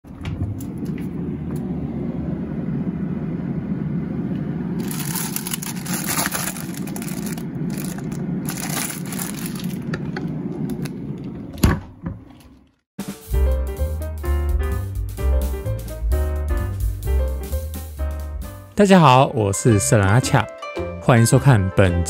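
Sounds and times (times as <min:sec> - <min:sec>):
steady low rumble: 0:00.1 - 0:11.4
plastic bag rustling: 0:04.8 - 0:10.2.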